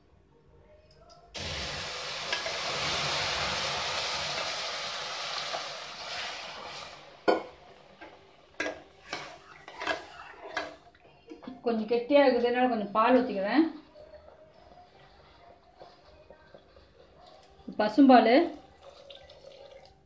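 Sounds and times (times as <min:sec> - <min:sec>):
milk sizzling in hot pan: 0:01.4 - 0:11.1
steel spoon scraping pan: 0:08.6 - 0:10.9.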